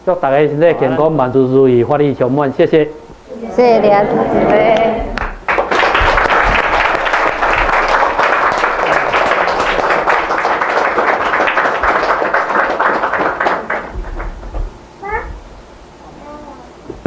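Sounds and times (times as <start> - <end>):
audience clapping: 4.8 - 14.6.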